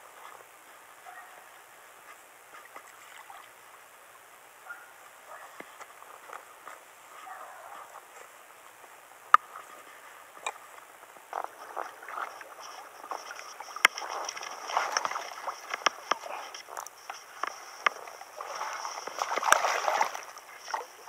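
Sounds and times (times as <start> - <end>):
water sloshing and splashing: 2.5 - 3.8, 11.3 - 21.0.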